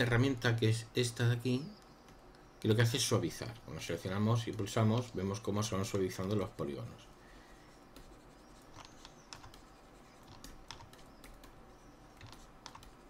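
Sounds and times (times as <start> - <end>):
low steady hiss: 0.0 - 13.0
mouse and keyboard clicks: 8.0 - 13.0.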